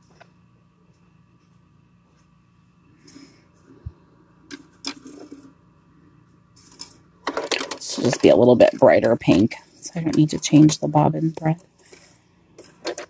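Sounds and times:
faint clicks and taps: 0.0s - 2.4s.

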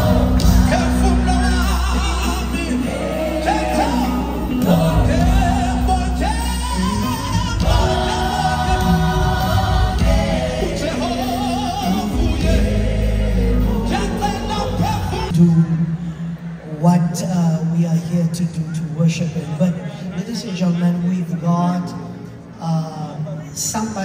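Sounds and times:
choir singing gospel music: 0.0s - 15.4s
steady low bass: 0.0s - 16.8s
lead vocal: 0.0s - 16.9s.

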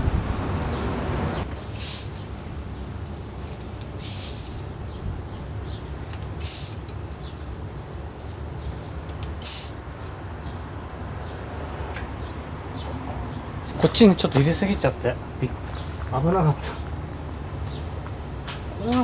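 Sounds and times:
hand pump hissing air: 1.6s - 2.5s, 3.4s - 7.4s, 9.1s - 10.1s.

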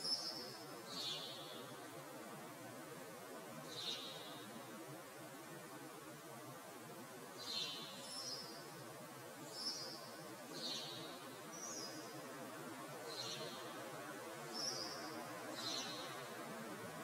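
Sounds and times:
songbird high-pitched calls: 0.0s - 1.8s, 3.7s - 4.5s, 7.4s - 8.7s, 13.1s - 13.8s, 14.5s - 16.3s
low background hiss: 0.0s - 17.0s.

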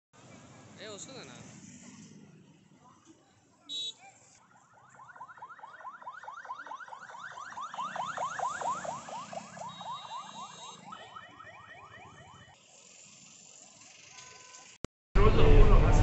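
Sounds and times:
emergency siren yelping: 3.7s - 13.6s.

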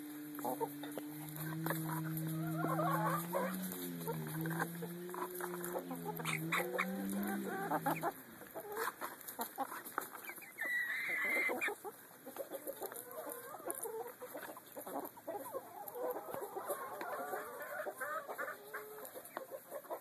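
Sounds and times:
hens clucking: 0.0s - 20.0s
hen low drawn-out call: 0.3s - 8.8s
hen high squawk: 0.5s - 8.2s, 10.5s - 11.7s.

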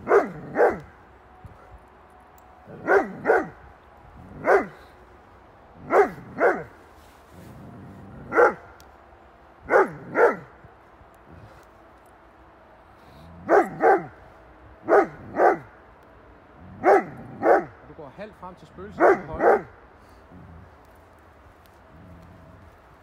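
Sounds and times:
dog barking loudly: 0.0s - 0.9s, 2.7s - 3.6s, 4.4s - 4.8s, 5.8s - 6.8s, 8.3s - 8.7s, 9.7s - 10.5s, 13.4s - 14.2s, 14.8s - 15.7s, 16.8s - 17.8s, 19.0s - 19.7s.

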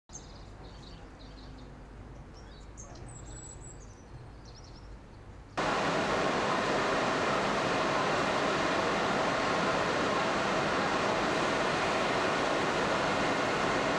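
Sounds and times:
birds chirping: 0.1s - 13.9s
loud industrial machine noise: 5.6s - 13.9s.

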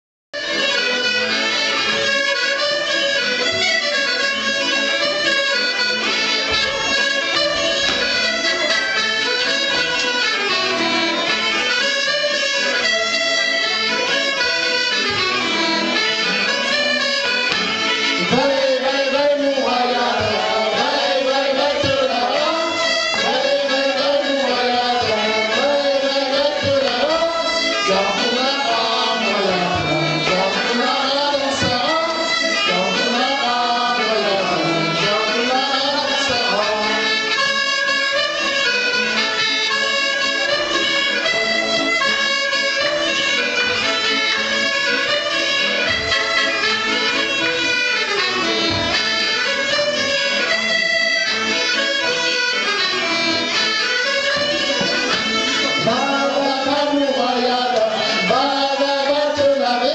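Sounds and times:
folk band playing dance music: 0.4s - 59.9s
voices singing: 18.2s - 37.3s, 55.7s - 59.9s.

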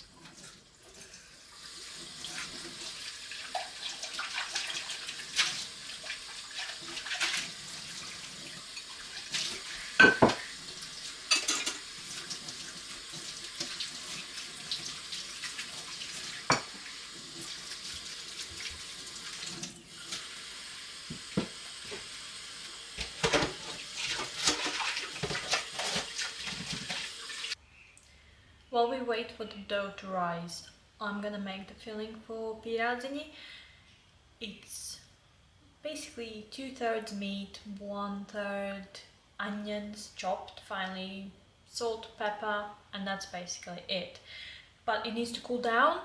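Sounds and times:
dishes and utensils clinking: 10.0s - 10.5s, 11.3s - 11.9s, 16.5s - 16.8s
tap running into sink: 16.5s - 16.8s, 21.0s - 22.1s.

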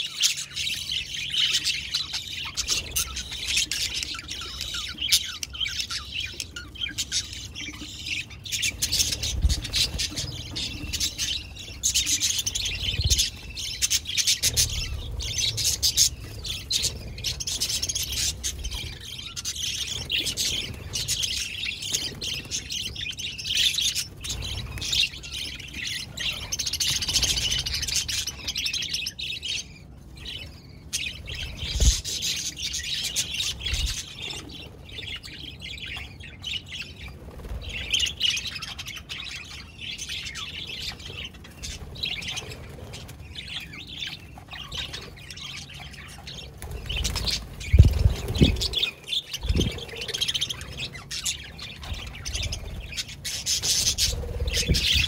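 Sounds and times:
budgerigars chirping: 0.0s - 37.1s.

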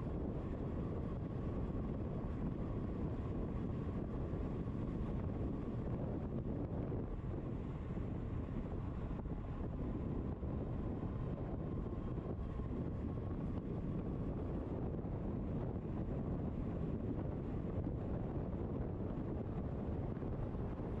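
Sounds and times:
faint steady whine: 0.0s - 21.0s
wind buffeting microphone: 0.0s - 21.0s.

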